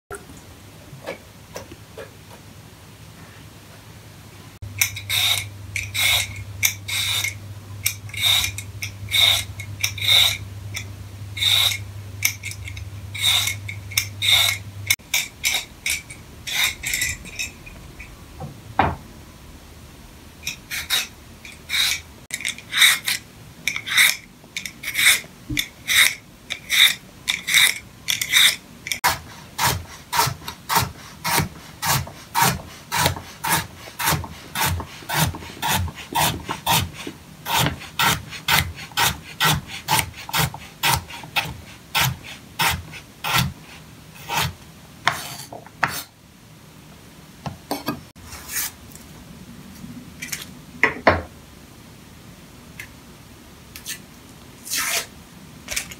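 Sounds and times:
vegetable peeler scraping carrot: 4.8s - 10.4s, 11.4s - 14.6s, 20.5s - 46.1s, 54.6s - 55.1s.

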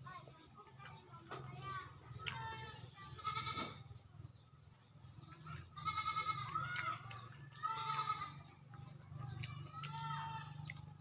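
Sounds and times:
animal bleating: 2.6s - 3.8s, 5.8s - 6.8s, 7.6s - 8.5s, 9.8s - 10.7s.

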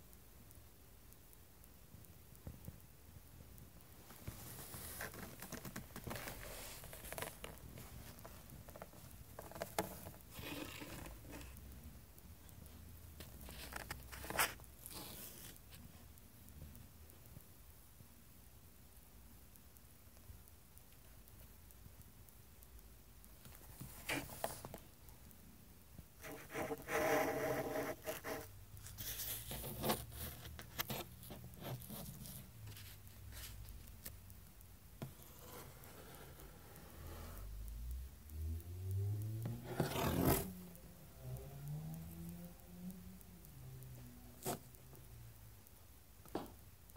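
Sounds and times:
soft clicks: 19.2s - 46.9s
sharp tick: 19.5s - 46.9s.

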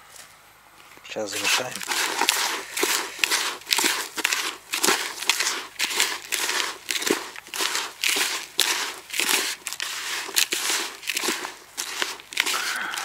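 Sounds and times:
hand kneading gritty bait: 1.0s - 13.0s.

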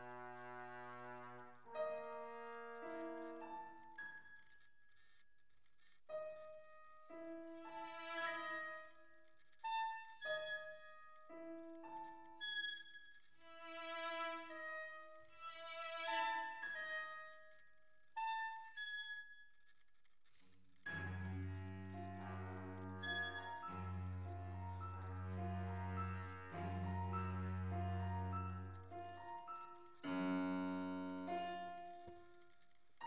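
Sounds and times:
trombone: 0.0s - 4.0s, 20.9s - 32.1s
cello: 0.0s - 4.2s, 6.2s - 19.1s, 20.8s - 32.6s
clarinet: 0.0s - 4.6s, 6.1s - 19.4s, 20.9s - 32.8s
piano notes: 0.0s - 4.9s, 6.1s - 19.2s, 20.8s - 33.0s.

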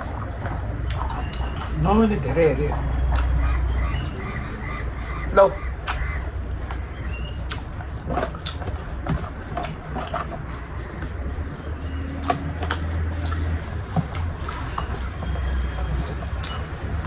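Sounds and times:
wet mouth clicks: 5.8s - 6.0s, 7.4s - 8.6s.

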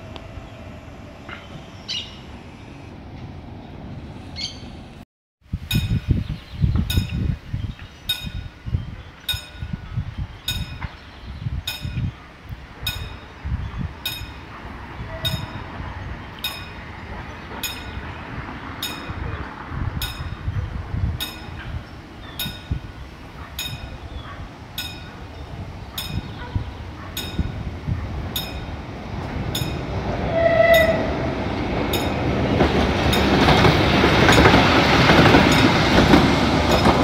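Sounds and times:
level crossing warning bell: 12.8s - 31.1s, 31.7s - 36.0s.

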